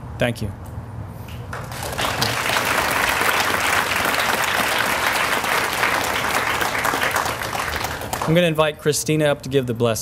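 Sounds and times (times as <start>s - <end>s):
audience applauding: 1.5s - 8.6s.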